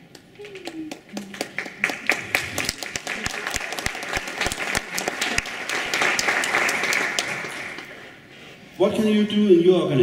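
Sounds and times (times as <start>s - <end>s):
audience applauding: 0.4s - 8.1s.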